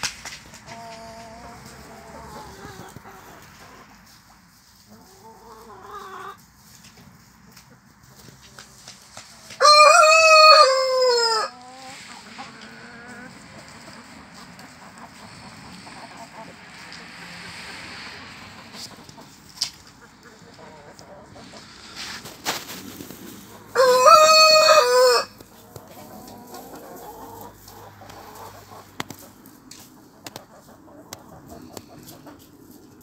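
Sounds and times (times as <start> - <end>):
hens clucking: 0.0 - 33.0
rooster crowing: 9.6 - 11.6, 23.7 - 25.4.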